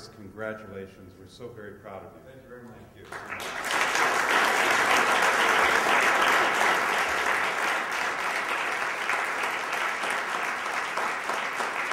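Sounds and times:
audience applauding: 3.0 - 11.9.

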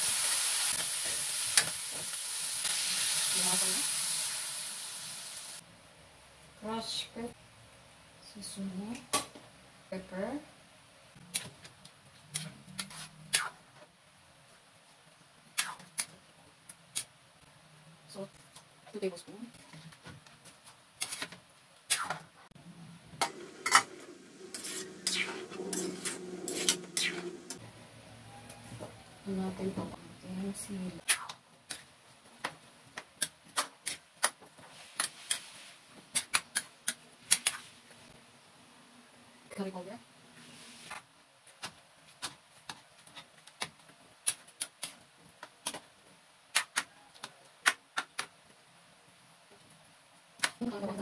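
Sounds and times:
spatula scraping wok: 23.2 - 27.6.

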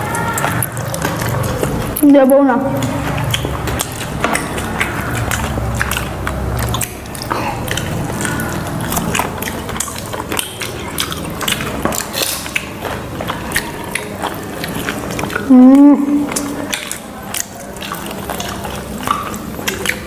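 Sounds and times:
chewing and crunching food: 0.0 - 20.0.

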